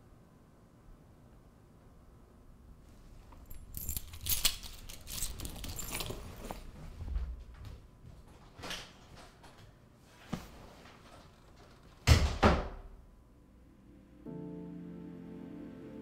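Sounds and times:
keys jangling: 3.4 - 6.6
bag and clothes rustling: 3.4 - 7.4.

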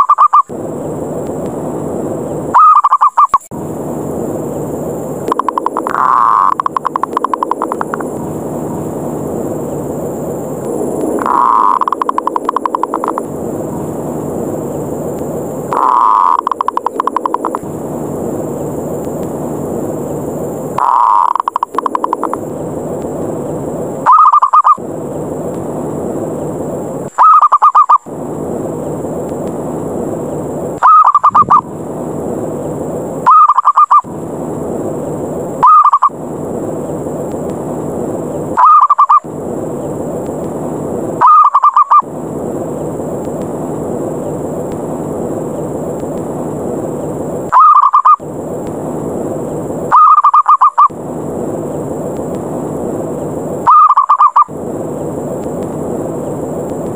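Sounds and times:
steady rushing background noise: 0.0 - 56.9
dove cooing: 2.6 - 3.3, 15.7 - 17.2, 20.8 - 22.3, 30.8 - 31.6, 41.2 - 42.0.

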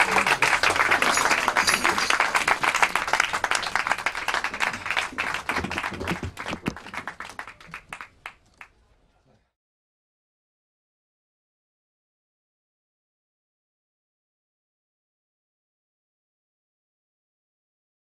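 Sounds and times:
audience applauding: 0.0 - 8.7.

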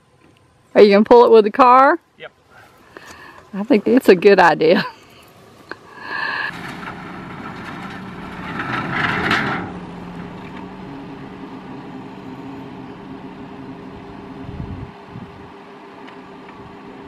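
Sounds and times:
suv engine running: 1.6 - 17.0
metal pipe scraping clatter: 5.9 - 10.9.

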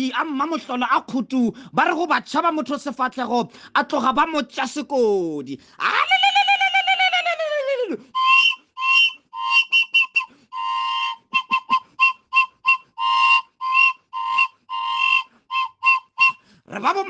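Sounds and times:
loud wavering call: 8.2 - 16.4
shrill whistle blasts: 8.2 - 16.4.

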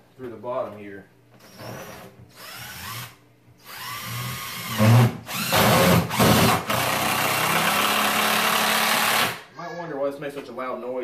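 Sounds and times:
impact driver whining and hammering: 1.4 - 9.4.

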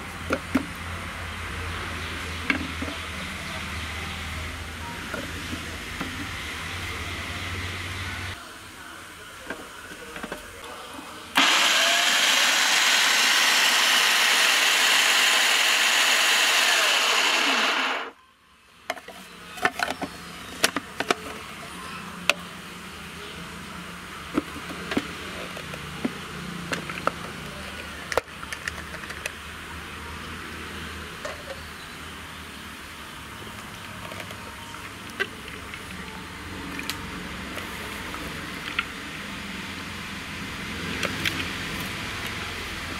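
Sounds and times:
food processor running: 11.4 - 18.2.

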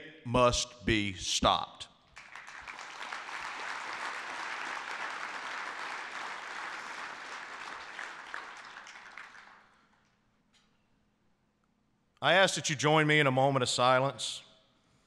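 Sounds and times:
audience applauding: 2.2 - 9.9.

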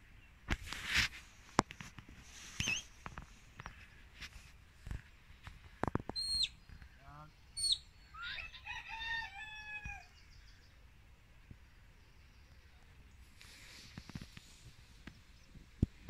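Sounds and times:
rooster crowing: 8.2 - 10.2.

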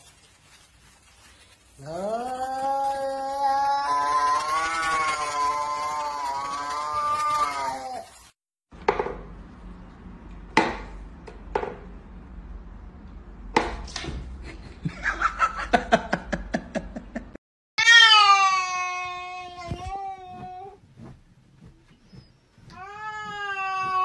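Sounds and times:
cat yowling: 1.8 - 8.1, 17.8 - 19.7.

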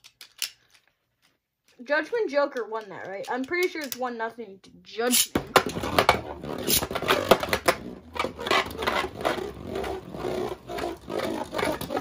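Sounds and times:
tops clicking and clacking: 2.4 - 4.1
spinning tops whirring: 5.1 - 12.0.

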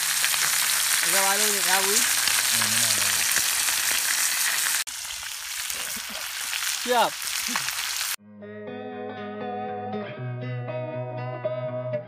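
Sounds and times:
fish frying in hot oil: 0.0 - 8.2.

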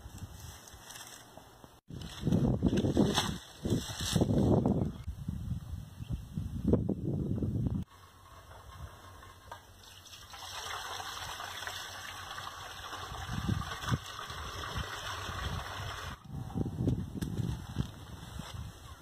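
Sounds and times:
water pouring into steel pot: 9.8 - 16.2.

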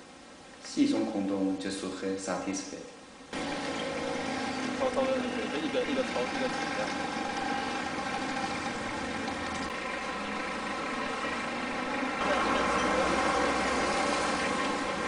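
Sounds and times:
vehicle engines droning: 3.3 - 15.0
deep engine rumble: 3.4 - 15.0.

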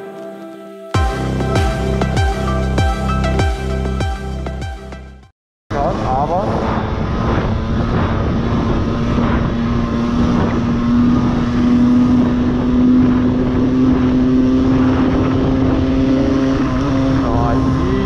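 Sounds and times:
wind rumble on microphone: 5.7 - 18.0
moped engine at high revs: 5.8 - 18.0.

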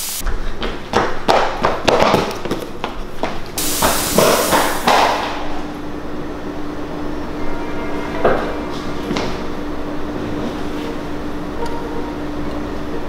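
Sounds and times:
hiss: 0.0 - 0.2, 3.6 - 5.5.

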